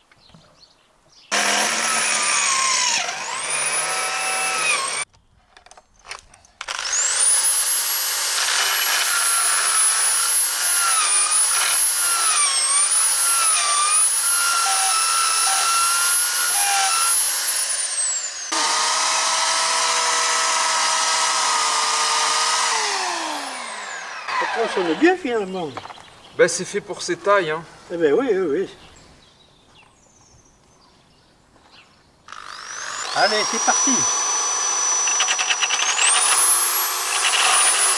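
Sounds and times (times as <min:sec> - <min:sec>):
cordless drill whining: 0:01.3 - 0:05.1, 0:06.6 - 0:25.0, 0:32.3 - 0:37.9
electric chainsaw running: 0:01.3 - 0:05.1, 0:06.6 - 0:25.0, 0:32.3 - 0:37.9.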